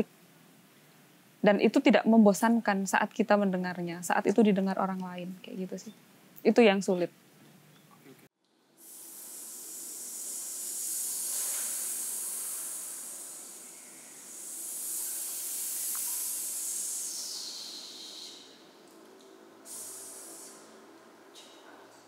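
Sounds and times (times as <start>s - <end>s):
people hissing: 8.8s - 18.8s, 19.6s - 21.6s.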